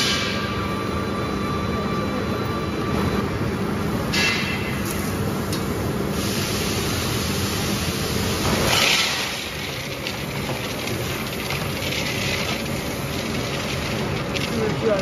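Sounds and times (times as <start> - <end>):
cooking mixer humming: 4.9 - 15.0
peanuts poured into pan: 8.6 - 15.0.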